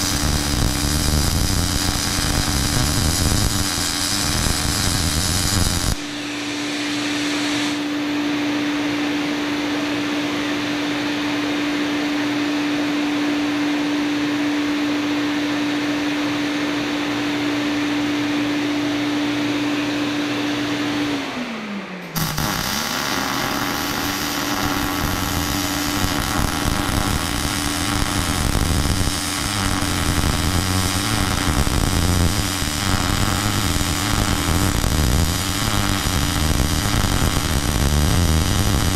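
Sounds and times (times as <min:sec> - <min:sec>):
welding arc crackling: 0:00.0 - 0:07.9, 0:22.2 - 0:38.9.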